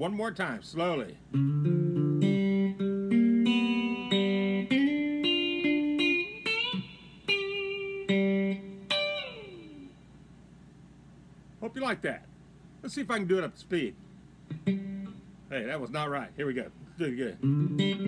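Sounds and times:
clean electric guitar: 0:01.3 - 0:10.0, 0:14.4 - 0:15.3, 0:17.4 - 0:18.0.

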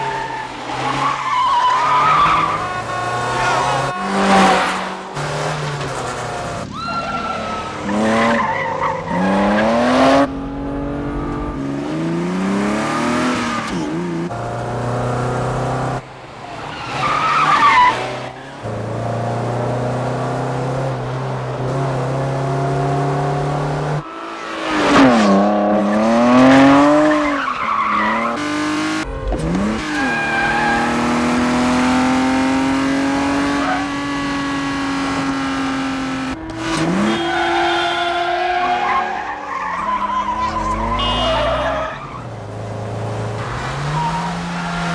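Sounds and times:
tyres squealing: 0:00.0 - 0:04.7, 0:36.4 - 0:42.4
car engines revving hard: 0:00.0 - 0:44.9.

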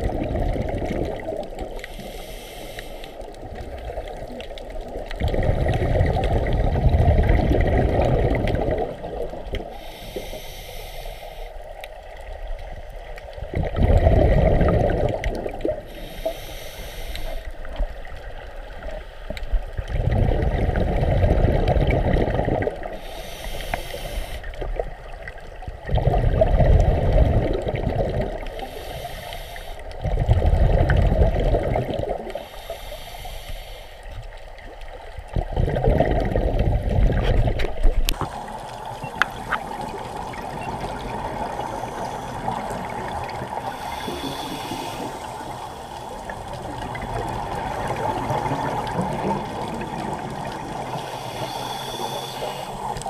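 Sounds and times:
exhaled bubbles rushing: 0:00.0 - 0:01.9, 0:03.2 - 0:09.7, 0:13.4 - 0:15.9, 0:19.6 - 0:23.1, 0:24.5 - 0:28.8, 0:29.9 - 0:32.5, 0:35.1 - 0:53.0
regulator inhalation hiss: 0:01.8 - 0:03.2, 0:09.7 - 0:11.8, 0:15.9 - 0:17.7, 0:22.9 - 0:24.6, 0:28.5 - 0:29.9, 0:32.4 - 0:34.2, 0:43.6 - 0:46.6, 0:50.8 - 0:53.0.

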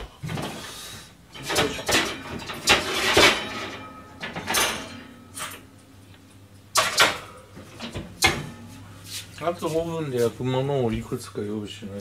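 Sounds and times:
low steady hum: 0:00.0 - 0:12.0
dishes knocking and banging: 0:01.4 - 0:05.6.

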